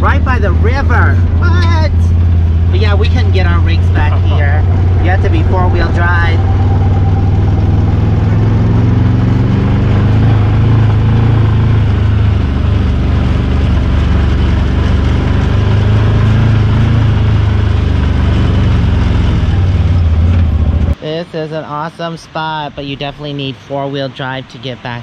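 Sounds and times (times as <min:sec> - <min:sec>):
vehicle engine low drone: 0:00.0 - 0:25.0.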